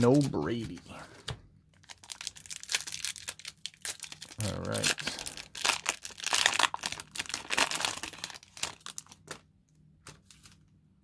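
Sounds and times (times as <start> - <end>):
foil wrapper tearing and crinkling: 1.8 - 9.4.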